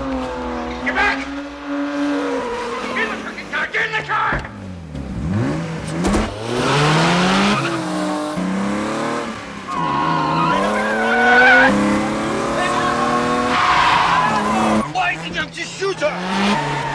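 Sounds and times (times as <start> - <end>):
car engine revving: 0.0 - 16.9
tyres squealing: 0.1 - 4.6, 7.2 - 8.1, 9.7 - 16.9.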